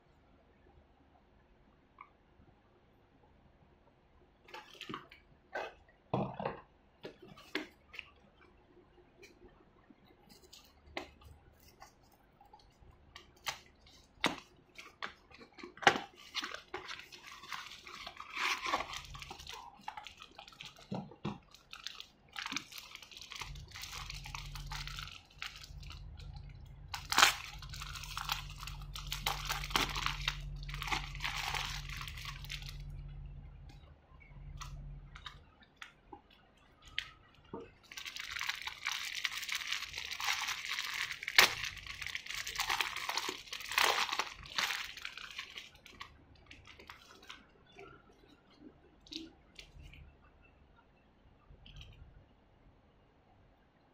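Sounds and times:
low steady hum: 0:00.0 - 0:53.9
plastic bags crinkling: 0:13.2 - 0:33.2, 0:37.7 - 0:47.5.

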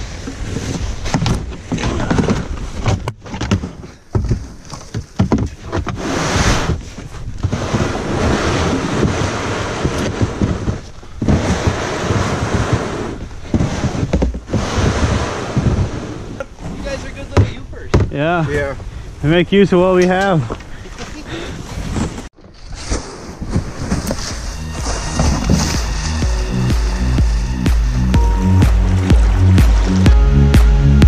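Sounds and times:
kayak hull scraping over snow: 0:00.0 - 0:19.4, 0:20.7 - 0:30.5
branches brushing: 0:22.1 - 0:30.2.

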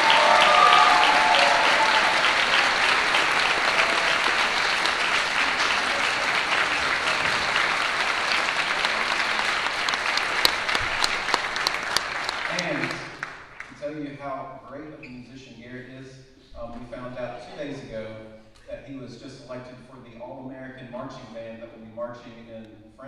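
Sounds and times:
audience applauding: 0:00.0 - 0:13.8.

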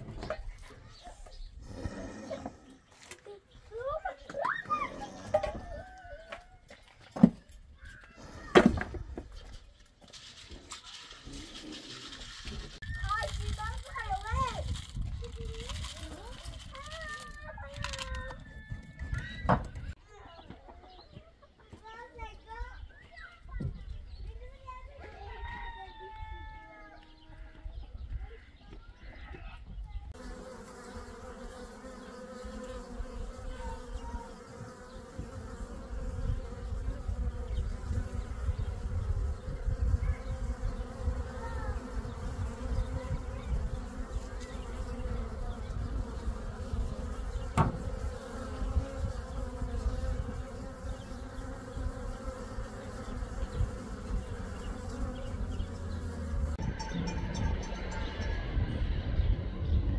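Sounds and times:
insect buzzing: 0:30.1 - 0:56.6.

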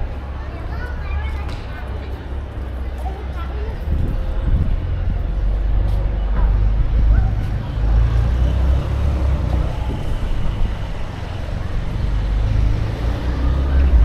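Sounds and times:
faint voices: 0:00.0 - 0:14.0
traffic rumble: 0:00.0 - 0:14.0.

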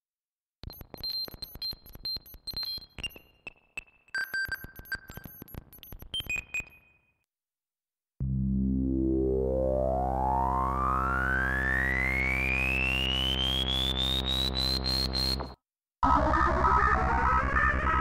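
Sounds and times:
electronic blips and clicks: 0:00.6 - 0:07.1, 0:12.2 - 0:15.6
buzzy synth tone sweeping upward: 0:08.3 - 0:15.4.

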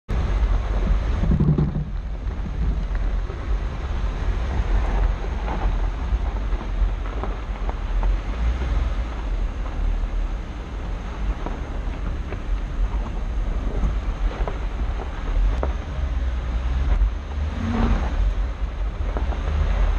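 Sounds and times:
engine rumble: 0:00.1 - 0:19.9
low hum: 0:00.1 - 0:19.9
tyres on gravel: 0:00.1 - 0:19.9
wind buffeting microphone: 0:00.1 - 0:19.9.

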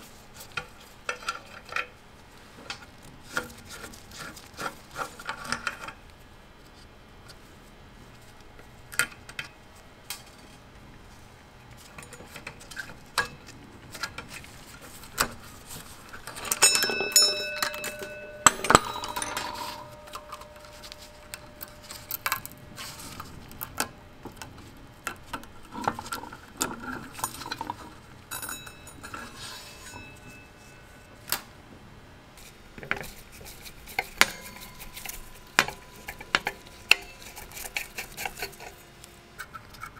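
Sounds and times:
small metal parts clicking: 0:16.4 - 0:22.6
metal part ringing: 0:16.5 - 0:22.6, 0:28.3 - 0:31.1.

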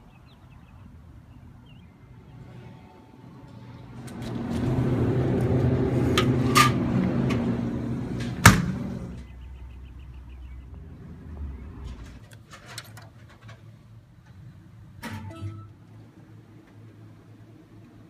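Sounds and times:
cooler door banging shut: 0:08.4 - 0:08.8.

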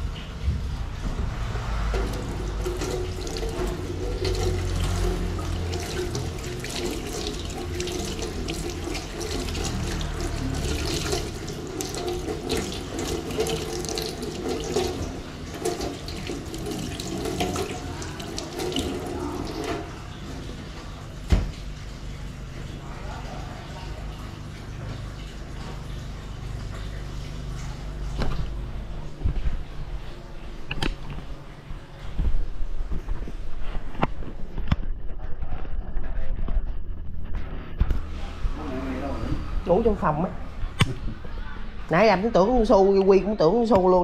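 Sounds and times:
tap water running into sink: 0:00.1 - 0:22.6.

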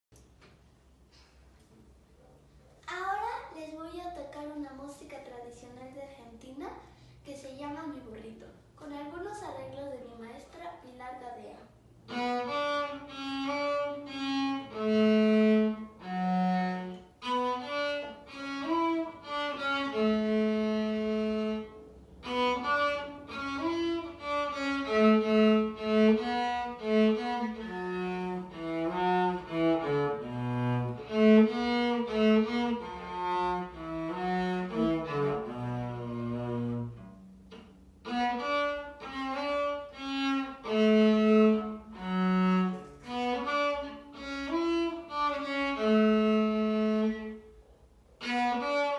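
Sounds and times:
solo cello folk melody: 0:12.0 - 0:47.5, 0:48.2 - 0:48.9.

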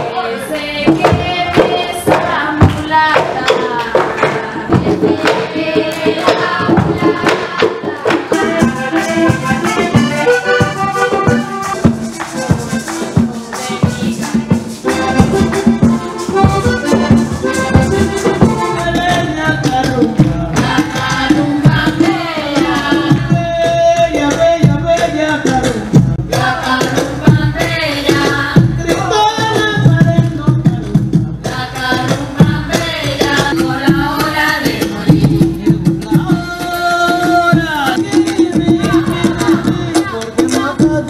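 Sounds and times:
accordion melody: 0:00.0 - 0:30.5
rattling percussion and drums: 0:00.0 - 0:41.0.

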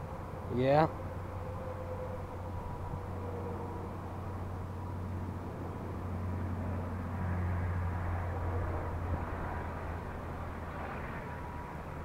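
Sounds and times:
wind rumbling on microphone: 0:00.0 - 0:12.0.

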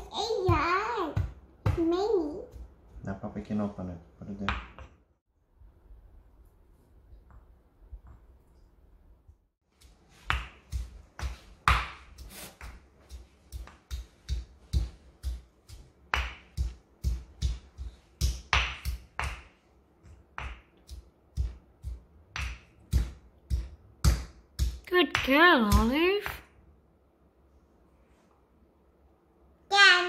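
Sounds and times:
pestle pounding in stone mortar: 0:09.8 - 0:19.6, 0:20.2 - 0:25.9.

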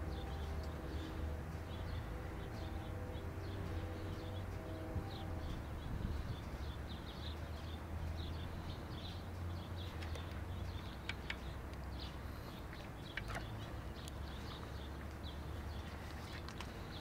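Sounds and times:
birds chirping: 0:00.0 - 0:17.0
sharp ticks: 0:09.1 - 0:11.9.

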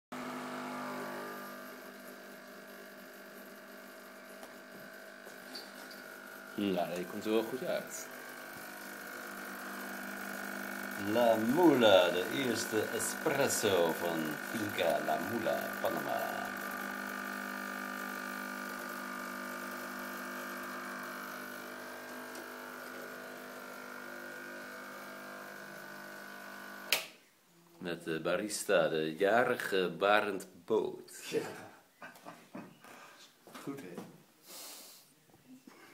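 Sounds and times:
steady electrical hum: 0:00.3 - 0:30.3
coffee pouring into cup: 0:01.3 - 0:26.9.

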